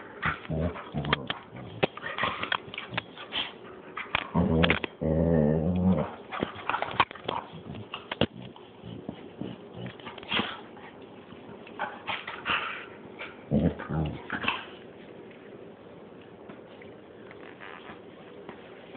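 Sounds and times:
dog growling: 0.0 - 3.1, 4.0 - 10.7, 11.8 - 14.8.

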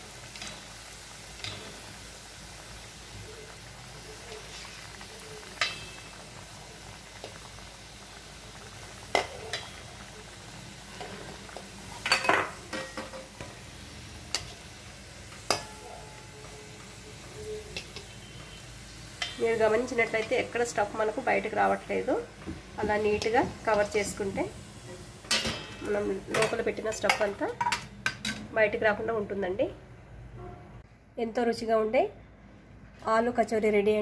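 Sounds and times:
food deep-frying in oil: 0.0 - 29.6
steel skimmer clinking on pan: 5.6 - 6.1, 15.5 - 16.2.

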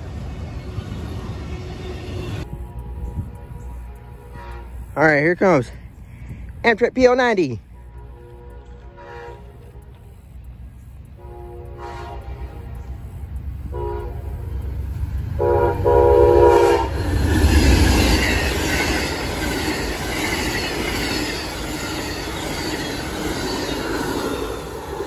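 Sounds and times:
rushing rail noise: 0.0 - 25.0
locomotive air horn blasts: 2.0 - 5.0, 7.6 - 10.3, 11.1 - 14.7, 15.3 - 17.1
locomotive passing loudly: 7.6 - 25.0
train wheel clatter: 14.3 - 25.0.

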